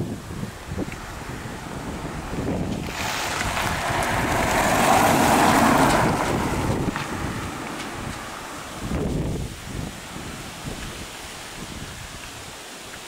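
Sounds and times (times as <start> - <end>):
wind rumbling on microphone: 0.0 - 13.0
car driving past: 1.0 - 9.1.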